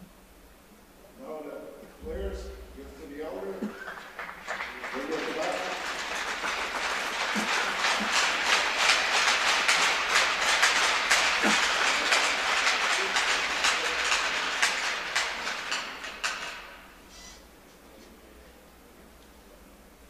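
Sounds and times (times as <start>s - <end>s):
crowd applauding: 2.0s - 17.0s.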